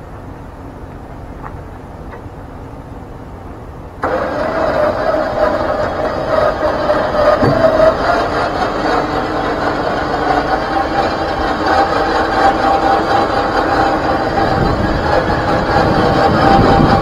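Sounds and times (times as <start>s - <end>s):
electric winch motor whine: 4.0s - 17.0s.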